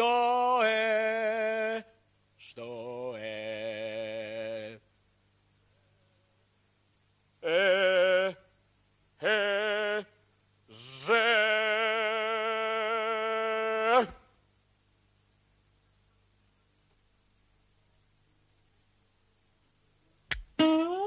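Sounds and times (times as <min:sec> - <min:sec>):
man singing held vowel notes: 0:00.0 - 0:04.9, 0:07.4 - 0:08.6, 0:09.2 - 0:14.3.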